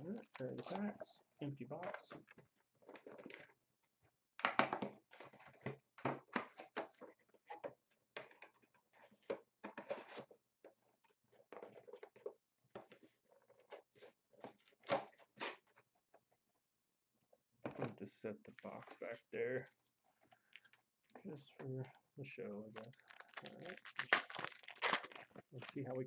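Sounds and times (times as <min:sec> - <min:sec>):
foil packs crinkling: 0:22.6 - 0:26.0.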